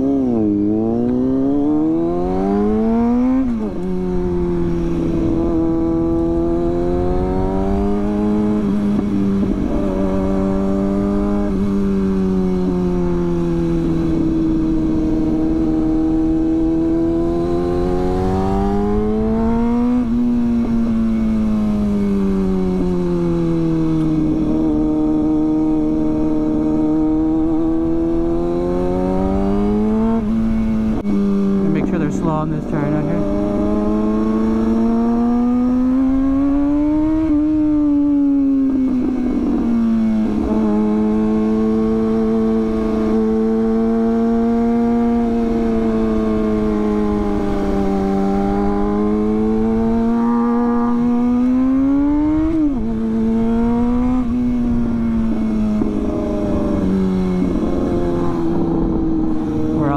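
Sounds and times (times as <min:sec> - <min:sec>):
low wind rumble: 0:00.0 - 0:59.9
motorcycle engine revving: 0:00.0 - 0:59.9.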